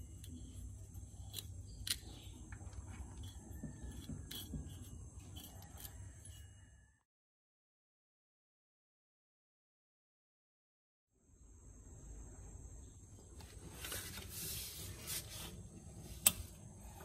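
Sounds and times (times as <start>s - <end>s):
steady low hum: 0.0s - 6.6s.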